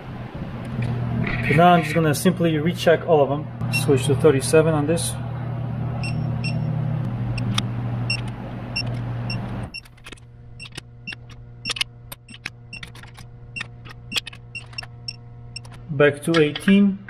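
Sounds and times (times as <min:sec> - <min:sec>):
steady low hum: 0:00.0 - 0:17.0
torque wrench beeping: 0:03.6 - 0:03.9, 0:06.0 - 0:06.7, 0:07.3 - 0:10.0, 0:10.6 - 0:15.8
ratchet clicks: 0:09.7 - 0:16.8.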